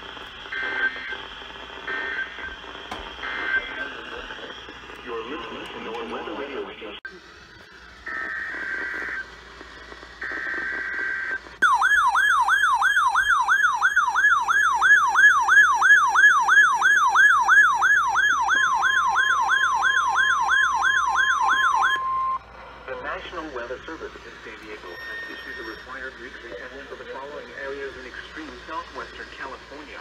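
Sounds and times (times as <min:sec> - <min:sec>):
digital data tone bursts: 0:00.0 - 0:05.9, 0:23.8 - 0:30.0
warbling alarm siren: 0:00.0 - 0:06.4, 0:07.0 - 0:22.5
steady alarm tone: 0:00.0 - 0:30.0.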